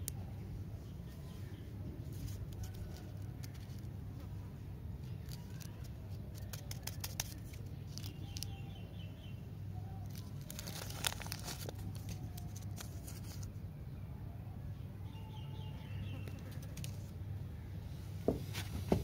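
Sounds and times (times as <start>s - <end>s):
wrapper crinkling and tearing: 5.1s - 8.6s, 10.0s - 13.5s.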